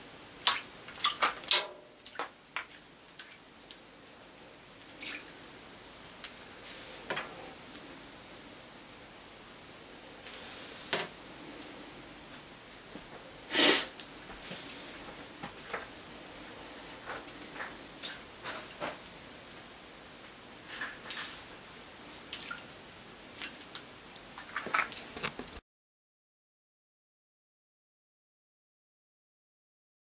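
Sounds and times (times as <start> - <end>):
water splashing and dripping: 0.4 - 3.8, 4.8 - 6.4, 22.2 - 22.8.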